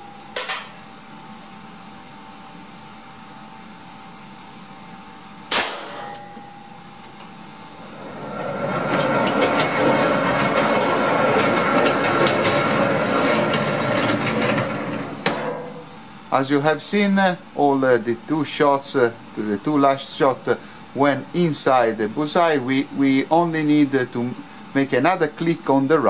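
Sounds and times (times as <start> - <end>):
motorised target carrier running: 7.2 - 16.0.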